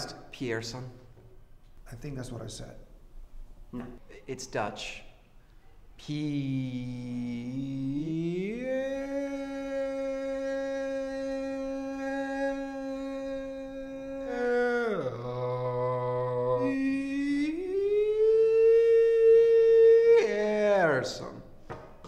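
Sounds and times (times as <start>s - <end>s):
man drawing out a word in sung notes: 6.0s - 20.9s.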